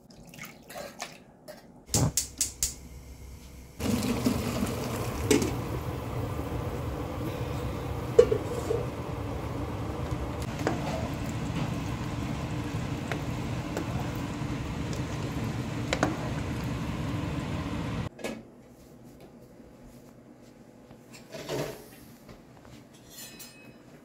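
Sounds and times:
low hum: 1.9 - 18.1
sauce simmering in a frying pan: 3.8 - 18.1.

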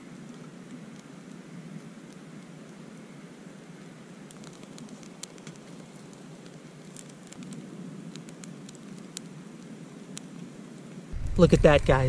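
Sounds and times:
twigs crackling and popping in stove: 4.3 - 12.0
fire low rush: 11.1 - 12.0.

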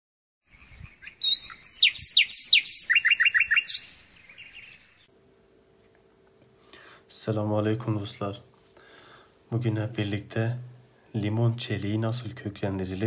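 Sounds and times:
songbird singing: 0.5 - 5.1.

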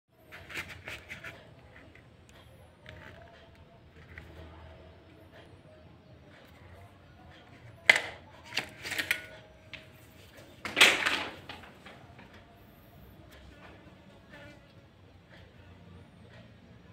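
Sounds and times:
blade scraping against leather: 0.2 - 2.1.

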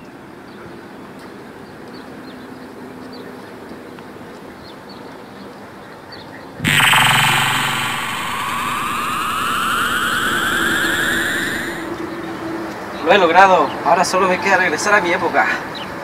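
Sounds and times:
electronic power-up sound effect: 6.6 - 12.0.

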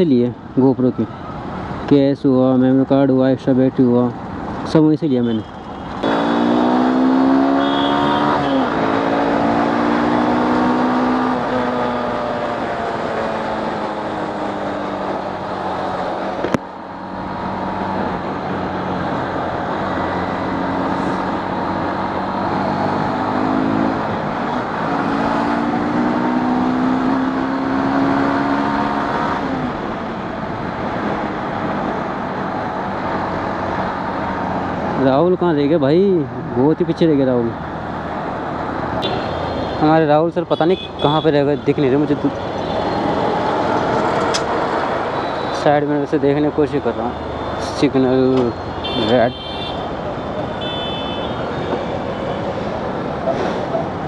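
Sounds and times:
wind and road noise: 0.0 - 54.0
motorcycle engine accelerating: 6.0 - 15.7.

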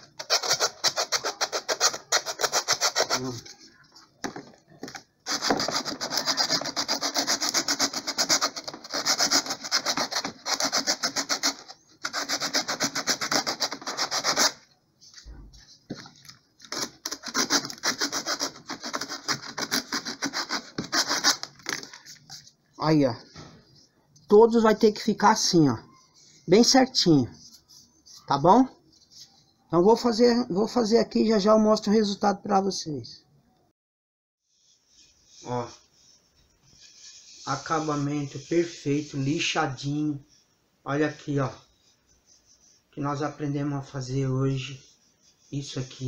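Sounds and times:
sandpaper rubbing on wood: 0.1 - 3.5, 5.3 - 15.3, 16.7 - 21.5, 34.6 - 40.4, 41.7 - 43.0, 44.0 - 46.0.

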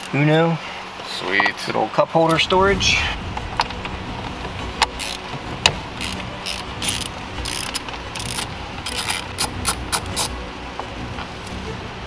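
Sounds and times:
hand ratchet clicking: 4.9 - 5.2, 6.0 - 10.3.

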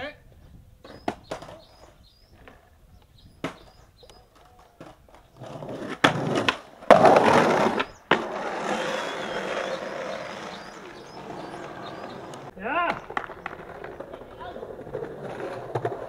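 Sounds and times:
skateboard wheels rolling: 0.8 - 16.0
skateboard clacks: 3.4 - 16.0
skateboard grinding on concrete ledge: 4.8 - 16.0.

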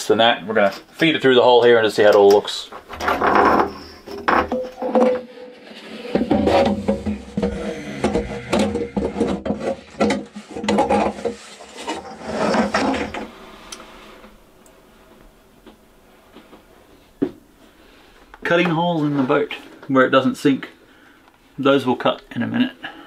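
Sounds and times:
metal hose scraping and rattling: 2.1 - 13.5.

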